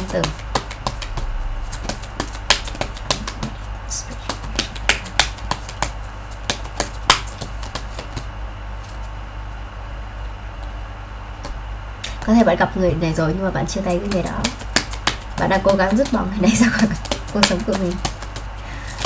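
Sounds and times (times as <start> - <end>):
cards being shuffled: 13.9 - 19.0.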